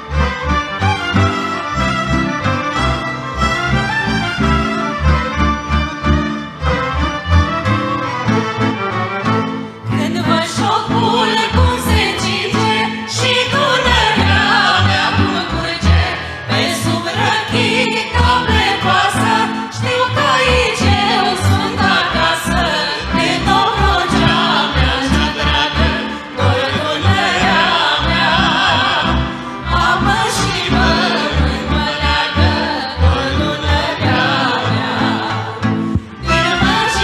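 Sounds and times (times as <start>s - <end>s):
violins playing: 0.0s - 37.0s
voices singing folk song: 9.9s - 37.0s.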